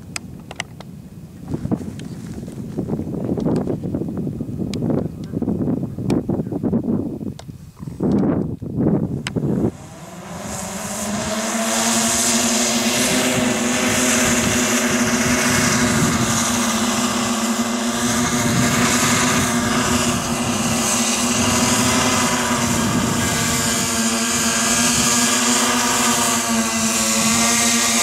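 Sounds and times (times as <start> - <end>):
vehicle engine droning: 9.1 - 28.0.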